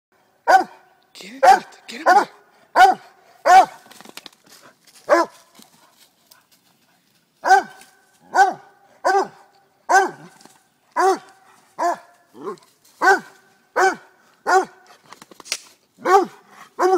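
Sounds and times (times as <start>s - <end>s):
small dog barking sharply: 0.5s - 0.7s, 1.4s - 3.8s, 7.4s - 10.2s, 11.0s - 12.1s, 13.0s - 14.8s.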